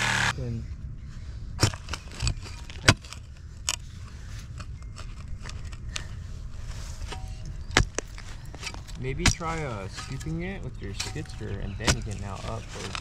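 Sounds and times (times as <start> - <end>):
shovel clinking and scraping: 6.8 - 13.0.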